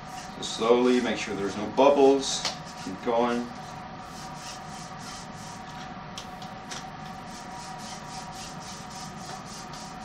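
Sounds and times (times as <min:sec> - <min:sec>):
fingers rubbing polishing pad: 0:04.1 - 0:05.6, 0:07.3 - 0:10.0.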